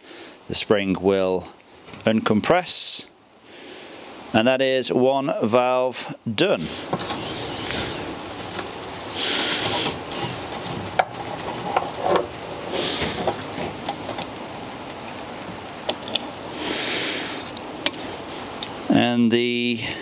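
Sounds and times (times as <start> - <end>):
tool handling rubbing: 6.7 - 16.4, 17.3 - 18.9.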